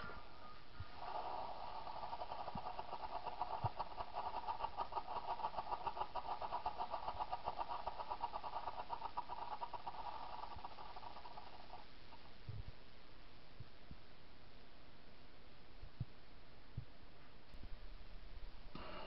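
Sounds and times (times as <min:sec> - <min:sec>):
strobe firework popping: 0:00.8 - 0:12.3.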